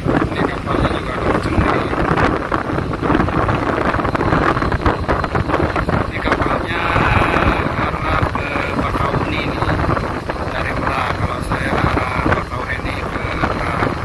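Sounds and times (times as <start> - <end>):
sea rushing: 0.0 - 14.0
ship engine rumble: 0.0 - 14.0
wind buffeting microphone: 0.0 - 14.0.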